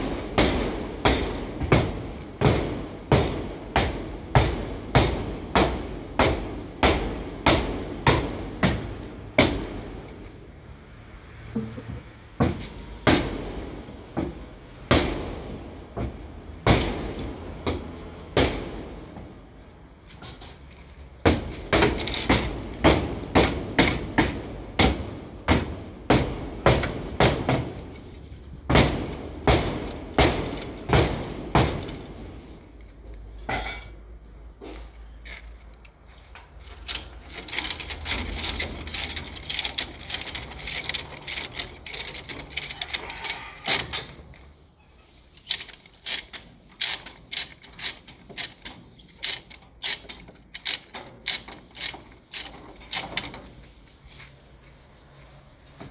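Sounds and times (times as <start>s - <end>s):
chain hoist ratcheting clicks: 36.6s - 44.1s, 45.4s - 53.4s.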